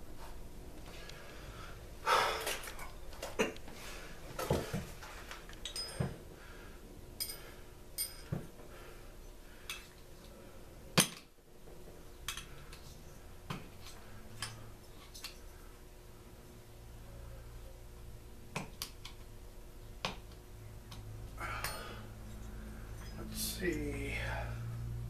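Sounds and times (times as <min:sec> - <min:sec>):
metal tools clinking on workbench: 0:05.6 - 0:06.2.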